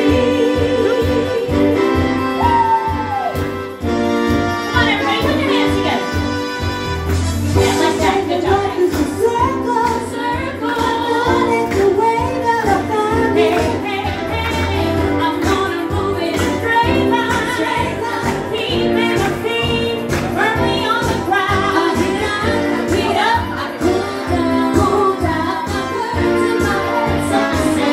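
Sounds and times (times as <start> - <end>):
women singing into microphone: 0.0 - 2.0, 7.6 - 27.9
dance music with steady beat: 0.0 - 27.9.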